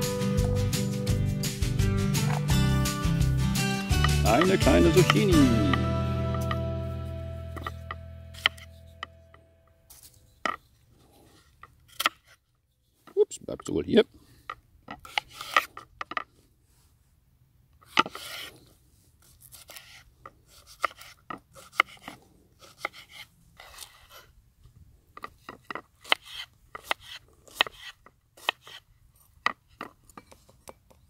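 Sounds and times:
knife cutting zucchini: 7.6 - 9.1, 17.8 - 18.5, 19.2 - 24.3, 25.5 - 28.8.

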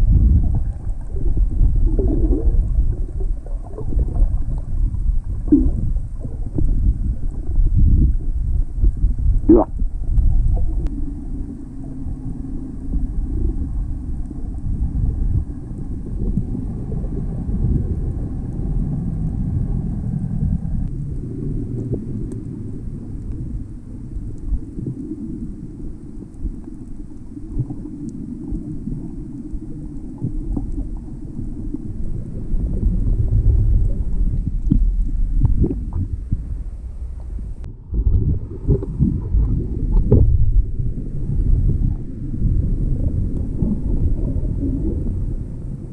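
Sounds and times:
muffled underwater rumble: 0.0 - 45.9
faint clicks: 21.8 - 36.1.

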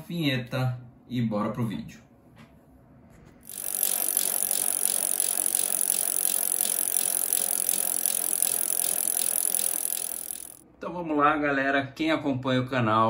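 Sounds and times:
bicycle drivetrain rattling: 3.5 - 10.6.

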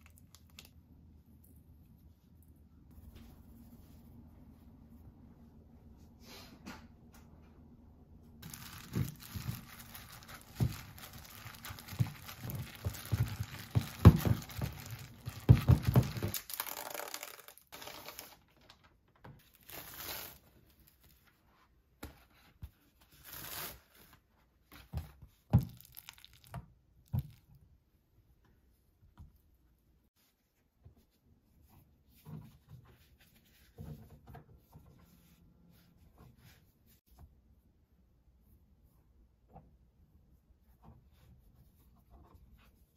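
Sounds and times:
wrappers rustling: 8.4 - 18.4.

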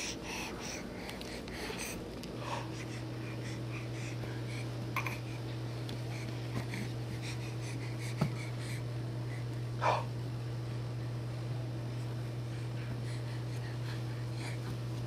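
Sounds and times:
baby breathing and snuffling: 0.0 - 5.4, 6.0 - 10.1
low steady hum: 0.0 - 15.0.

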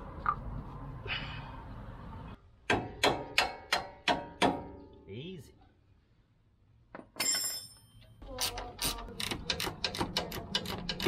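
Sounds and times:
tool clinking on metal: 7.1 - 8.6
ratchet spanner clicking: 8.4 - 11.0.

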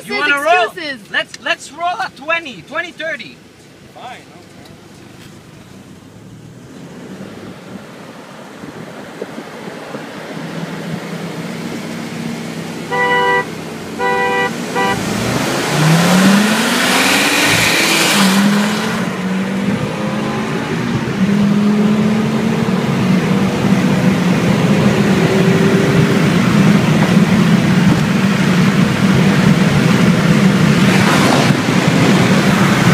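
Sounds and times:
road and wind noise: 0.0 - 32.9
car engine accelerating: 4.3 - 32.9
car horn honking: 12.8 - 15.4.

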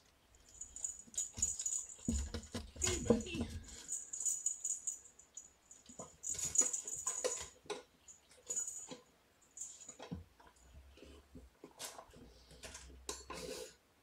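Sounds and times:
kittens scuffling: 0.0 - 13.7.

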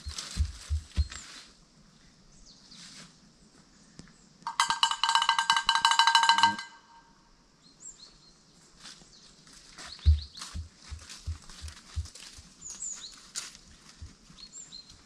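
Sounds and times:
small bells jingling: 4.5 - 7.0.

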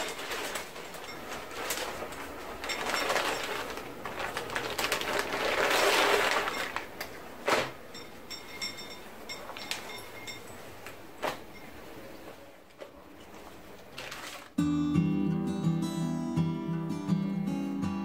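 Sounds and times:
plastic bag crinkling: 0.0 - 7.7, 13.9 - 14.6.

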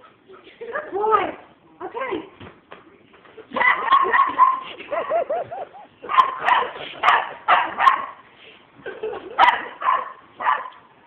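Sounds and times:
dog barking: 3.6 - 4.7, 6.0 - 8.2, 9.4 - 10.8.

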